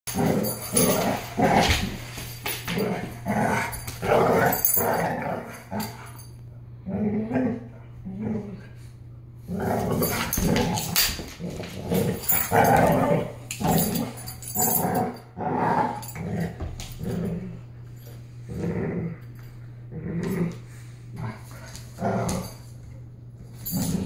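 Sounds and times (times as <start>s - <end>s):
puppies growling: 0.1s - 6.2s, 9.4s - 17.8s, 18.4s - 22.6s.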